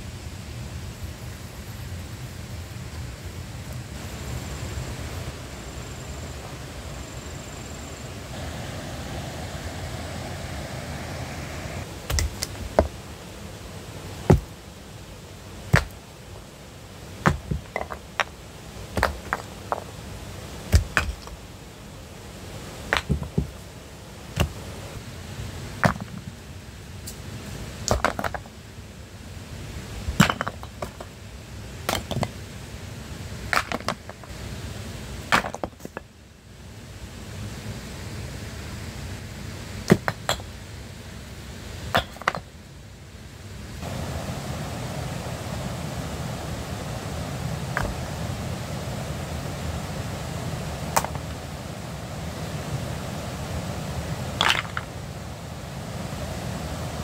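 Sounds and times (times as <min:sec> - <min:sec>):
tool chopping wood: 0:14.3 - 0:14.5, 0:15.7 - 0:16.0, 0:20.7 - 0:21.3.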